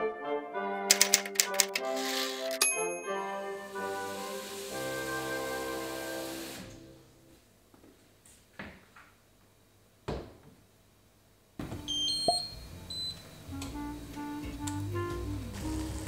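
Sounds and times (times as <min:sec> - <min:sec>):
soft background music: 0:00.0 - 0:07.4, 0:11.6 - 0:16.0
hob touch control beeps: 0:11.9 - 0:13.2.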